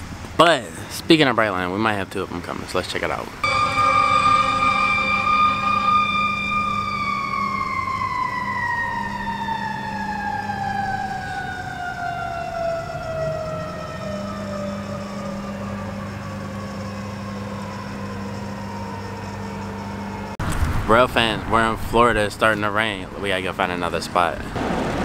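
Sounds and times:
fire truck siren winding down: 0:03.4 - 0:20.4.

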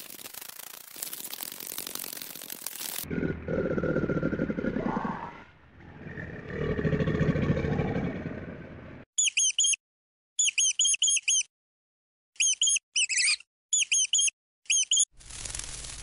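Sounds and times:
crocodile growling: 0:03.0 - 0:09.0
rat squeaking: 0:09.2 - 0:09.8, 0:10.4 - 0:11.5, 0:12.4 - 0:15.1.

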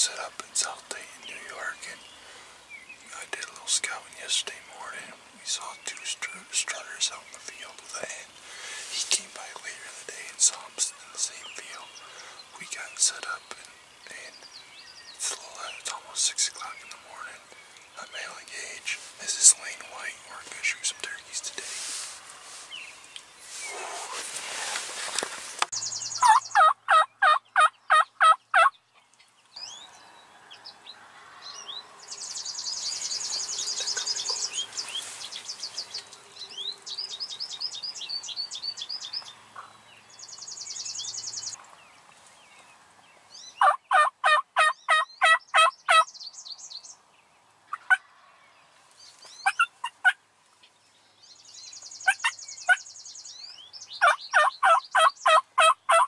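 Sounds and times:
songbirds trilling faintly: 0:00.0 - 0:56.0
turkey call yelps: 0:26.2 - 0:28.7, 0:43.6 - 0:46.0, 0:49.4 - 0:50.2, 0:54.0 - 0:56.0.

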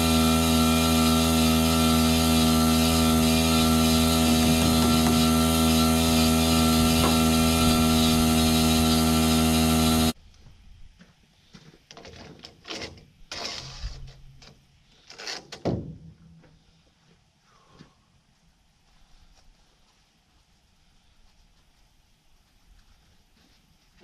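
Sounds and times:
loud machine hum: 0:00.0 - 0:10.2.

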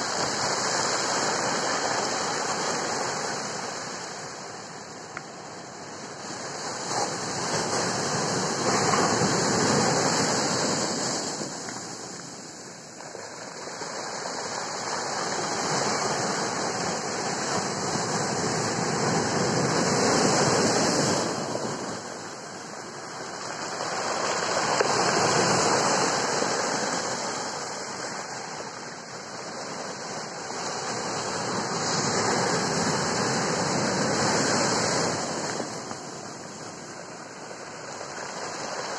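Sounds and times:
ocean surf breaking on a beach: 0:00.0 - 0:38.9.

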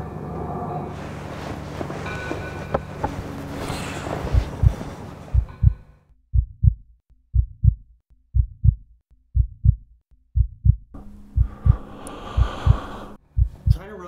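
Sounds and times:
heartbeat double thump: 0:04.3 - 0:09.8, 0:10.4 - 0:13.8.

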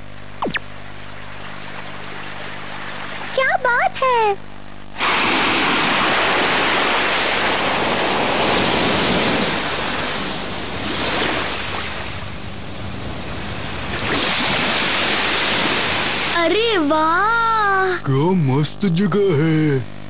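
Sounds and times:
ocean surf on beach: 0:05.0 - 0:16.5.

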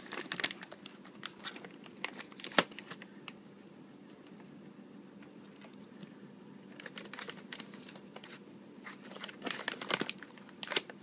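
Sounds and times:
cat crunching dry treats: 0:00.0 - 0:03.0, 0:06.8 - 0:08.4, 0:09.1 - 0:11.0.

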